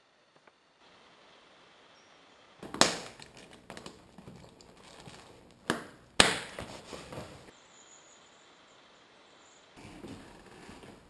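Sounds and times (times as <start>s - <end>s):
boot buckles snapping: 2.6s - 7.5s
knocks and gear rustling: 2.6s - 7.5s, 9.8s - 11.0s.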